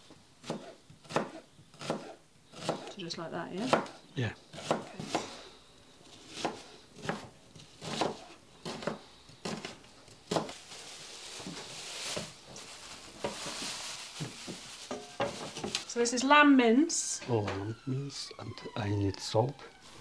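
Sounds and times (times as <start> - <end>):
knife chopping on plastic board: 0.4 - 2.9, 4.6 - 5.3, 6.3 - 10.5
plastic bag rustling: 9.5 - 16.2.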